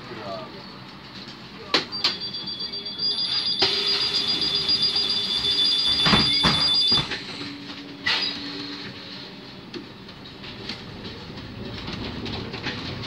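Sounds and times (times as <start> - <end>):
rapid high-pitched door warning beeping: 1.9 - 7.4.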